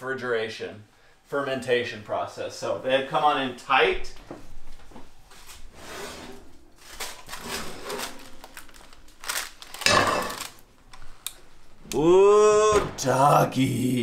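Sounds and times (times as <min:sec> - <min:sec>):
parchment paper rustling: 0:06.8 - 0:11.2.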